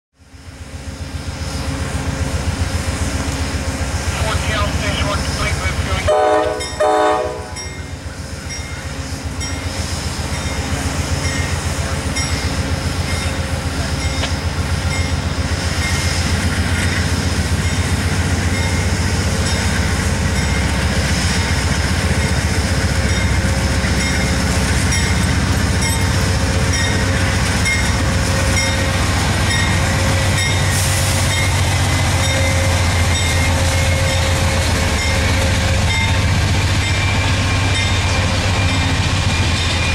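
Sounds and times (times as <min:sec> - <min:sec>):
locomotive diesel engines droning: 0:00.2 - 0:39.9
train horn: 0:05.9 - 0:07.7.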